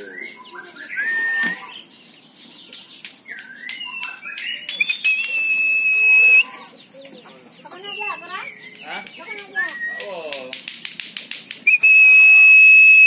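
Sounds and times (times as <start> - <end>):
bird chirps: 0.0 - 10.4, 11.6 - 13.0
person whistling: 4.8 - 6.5, 11.7 - 13.0.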